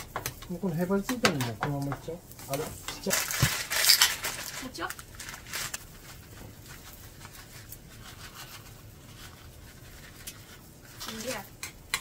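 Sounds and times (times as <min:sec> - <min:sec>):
batter sizzling in a pan: 0:00.0 - 0:12.0
soft taps of scattered food: 0:00.1 - 0:02.6.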